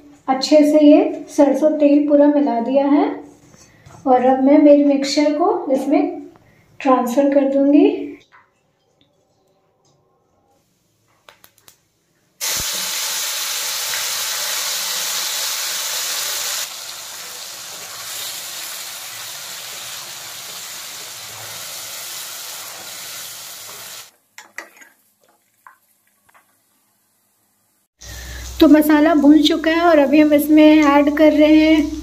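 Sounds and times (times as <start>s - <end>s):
oil sizzling in a pan: 12.4s - 32.0s.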